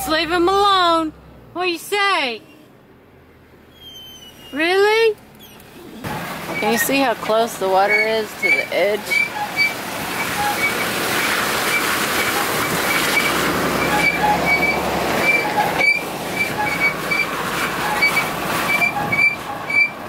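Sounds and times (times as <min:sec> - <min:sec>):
tyre and road noise: 0:00.0 - 0:20.0
short high squeak: 0:03.7 - 0:04.6, 0:07.9 - 0:10.9, 0:11.7 - 0:20.0.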